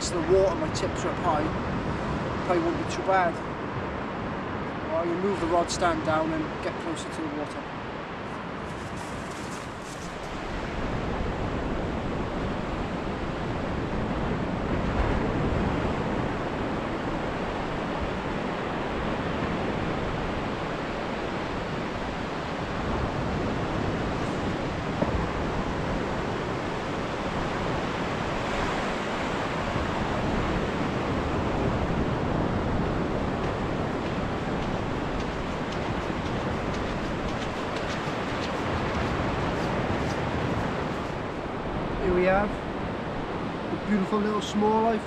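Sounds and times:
surf washing on sandy beach: 0.0 - 45.0
wind on microphone: 7.9 - 44.0.

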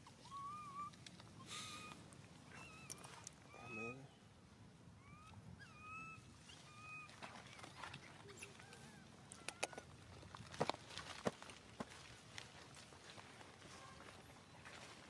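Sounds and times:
baby monkey squealing: 5.0 - 7.1.

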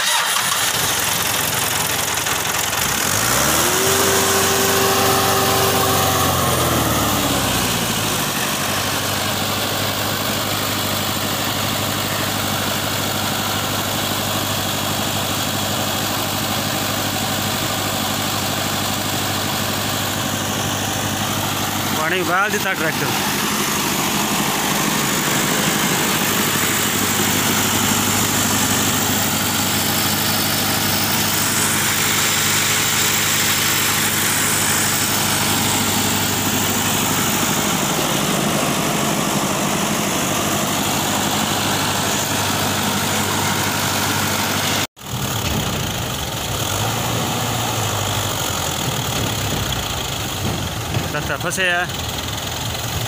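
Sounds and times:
tractor diesel engine running: 0.0 - 53.0
thresher whirring hiss: 2.9 - 9.4, 20.8 - 44.7.

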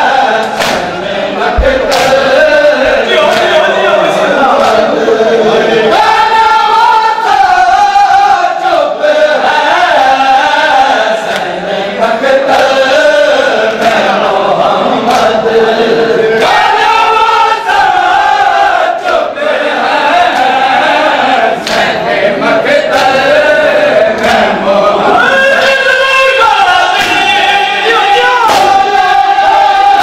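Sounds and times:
men chanting in unison: 0.0 - 30.0
hands slapping chests: 0.4 - 1.0, 1.6 - 2.4, 3.2 - 3.6, 11.3 - 11.6, 21.6 - 22.0, 22.9 - 23.2, 26.9 - 27.3, 28.5 - 28.9.

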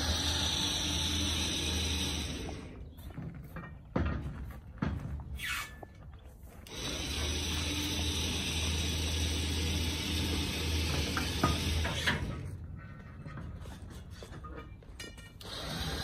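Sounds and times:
electric winch motor hum: 0.0 - 3.0, 6.6 - 12.5, 15.4 - 16.0.

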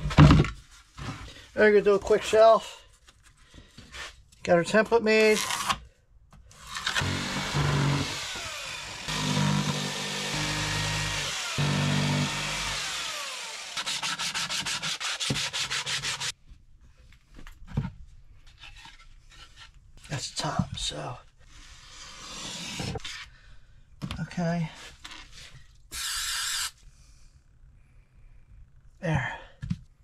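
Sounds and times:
power tool motor on wood: 6.6 - 15.2, 25.9 - 26.7.

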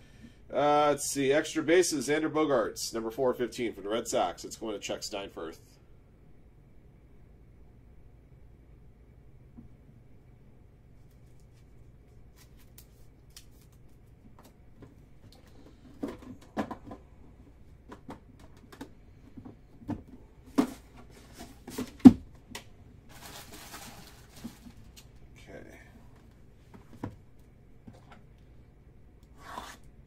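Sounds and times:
cards rustling: 11.1 - 14.6.

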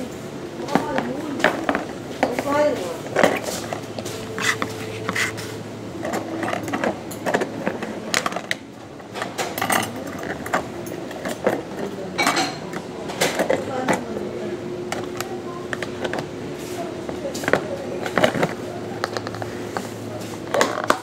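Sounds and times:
utensils clattering inside container: 0.8 - 14.2.

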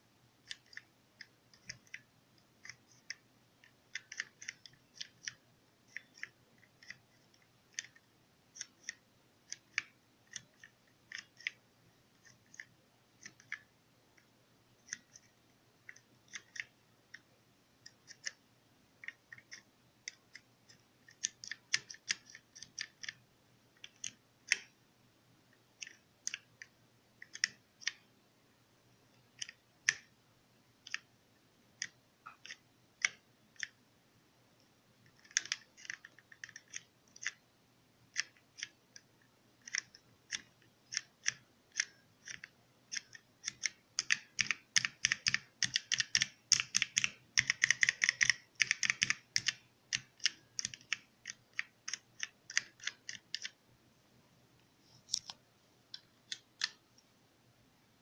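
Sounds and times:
keypad keys clicking: 0.4 - 11.6, 12.2 - 13.7, 14.8 - 17.2, 19.0 - 23.2, 23.8 - 24.7, 25.8 - 28.0, 31.8 - 33.8, 35.0 - 37.4, 39.6 - 53.6, 56.2 - 56.8.

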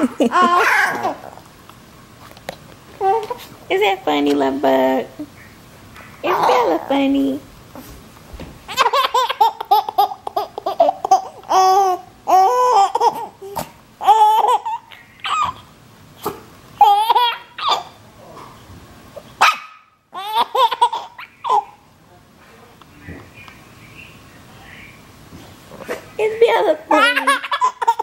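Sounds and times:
baby laughing and squealing: 0.0 - 1.4, 8.7 - 15.7, 16.8 - 18.0, 20.1 - 21.8, 26.9 - 28.0.

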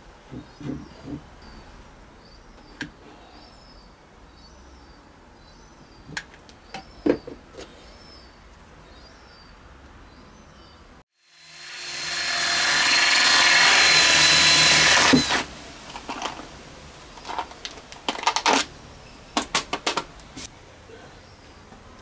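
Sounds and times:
power tool spinning with hiss: 11.2 - 15.5.

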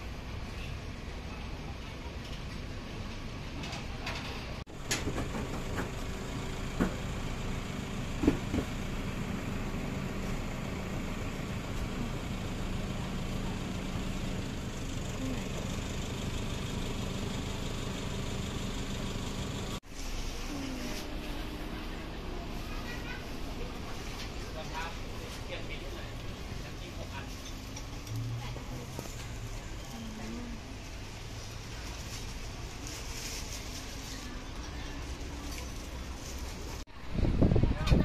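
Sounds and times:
low mechanical hum: 0.0 - 38.0
market background noise: 0.0 - 38.0.

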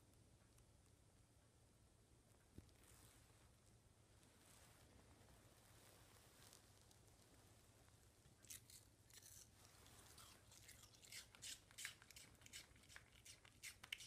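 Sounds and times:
dog crunching apple: 8.4 - 14.0.

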